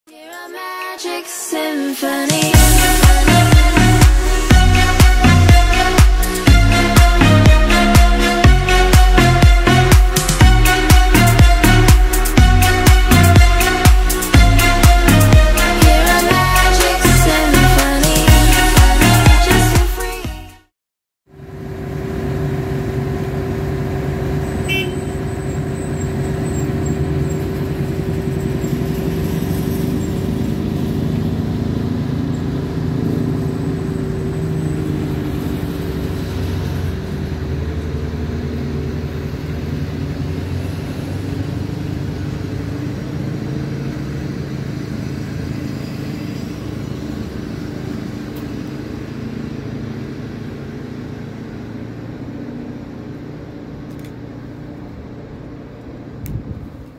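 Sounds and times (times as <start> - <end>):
diesel locomotive engine droning: 2.5 - 20.7, 21.3 - 56.9
train coaches rolling on rails: 21.6 - 52.4.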